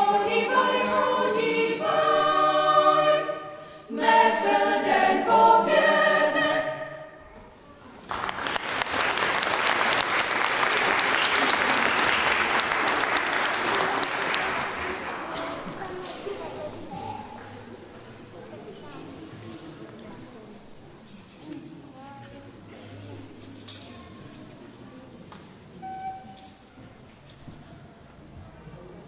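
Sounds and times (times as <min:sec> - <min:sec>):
choir singing: 0:00.0 - 0:07.2
audience applause: 0:08.0 - 0:15.6.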